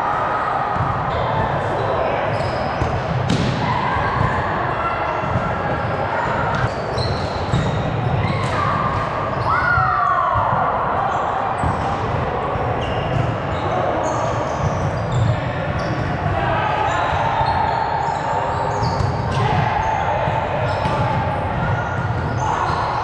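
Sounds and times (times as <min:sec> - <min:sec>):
players' voices: 0:00.0 - 0:23.0
shoes squeaking on court: 0:02.2 - 0:03.1, 0:06.4 - 0:08.5, 0:12.8 - 0:16.2, 0:17.4 - 0:19.3.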